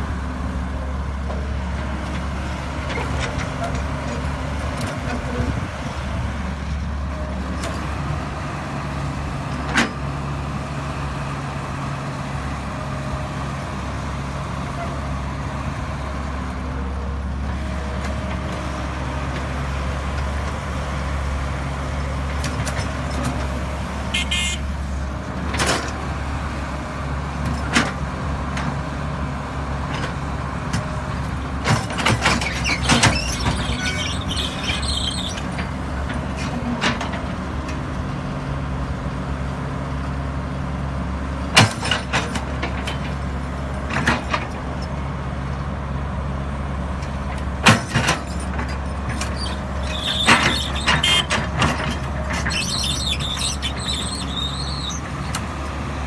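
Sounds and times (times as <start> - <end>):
excavator diesel engine running: 0.0 - 56.0
metallic clanks of excavator bucket: 31.6 - 37.2, 47.4 - 55.5.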